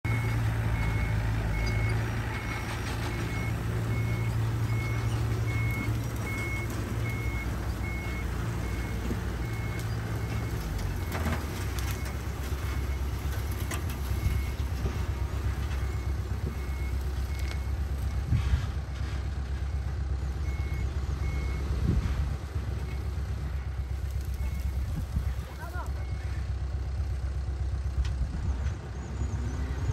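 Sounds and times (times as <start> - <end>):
diesel engine running: 0.0 - 29.9
reversing alarm beeping: 0.1 - 11.3.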